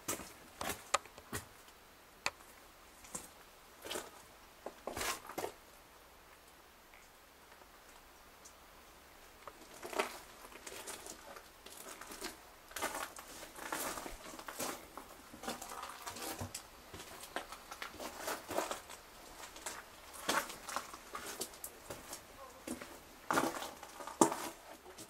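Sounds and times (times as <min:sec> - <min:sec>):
footsteps crunching on stone: 0:09.6 - 0:25.0.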